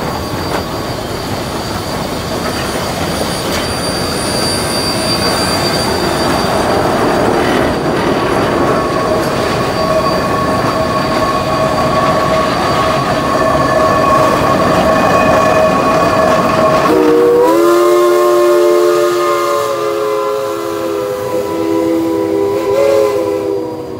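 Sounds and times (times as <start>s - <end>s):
chime steam whistle: 0.0s - 7.6s, 8.6s - 23.9s
steam locomotives running: 0.0s - 23.9s.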